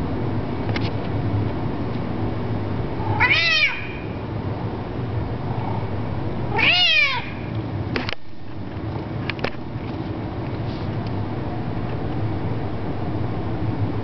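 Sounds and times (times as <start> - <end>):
cat meowing: 3.1 - 4.1, 6.5 - 7.4.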